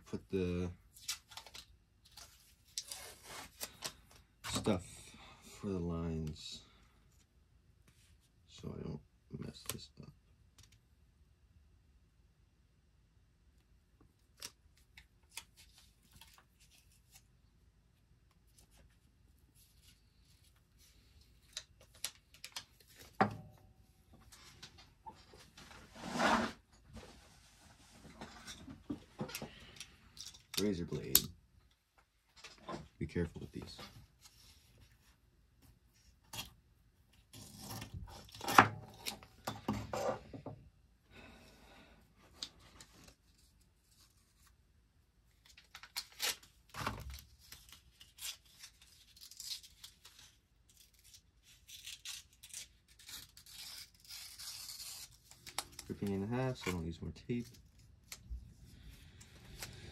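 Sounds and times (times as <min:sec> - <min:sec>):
tape rasping and rubbing: 0:25.8 - 0:26.7, 0:50.7 - 0:55.9.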